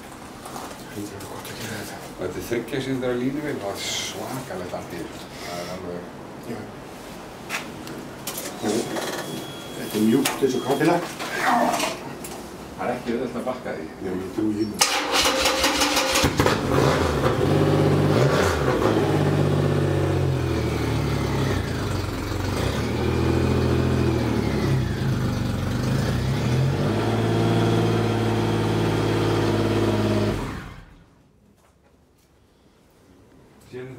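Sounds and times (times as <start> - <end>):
motorcycle engine starting and revving: 14.8 - 31.1.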